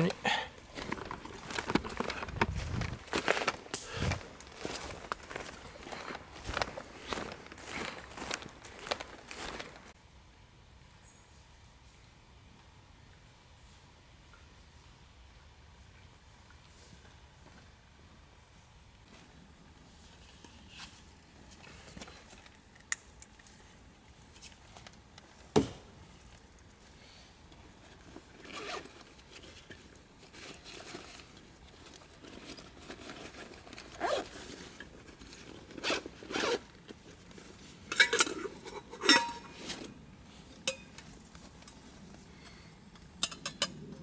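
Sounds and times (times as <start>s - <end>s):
gear handled in pack: 0.0s - 9.9s, 27.8s - 39.9s
backpack zippers rasping: 28.4s - 29.0s, 33.0s - 34.7s, 35.6s - 36.8s.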